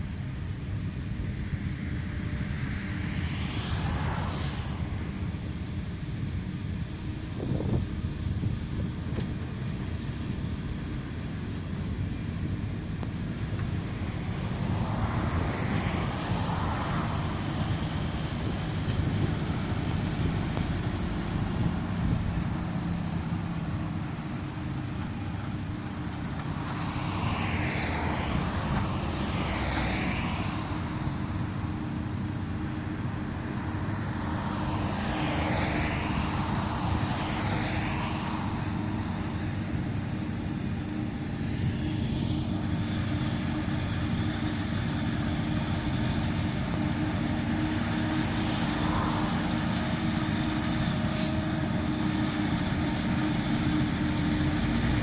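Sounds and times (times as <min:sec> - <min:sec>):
truck driving past: 0:00.0 - 0:55.0
farm machinery droning: 0:04.8 - 0:27.3, 0:38.5 - 0:55.0.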